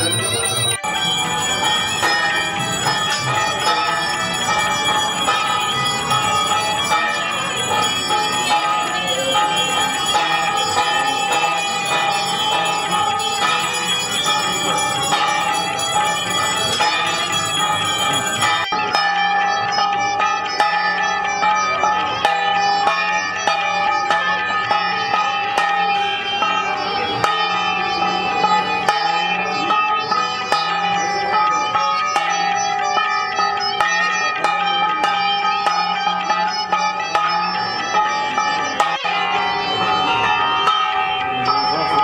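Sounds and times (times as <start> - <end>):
temple bells ringing rapidly: 0.0 - 42.0.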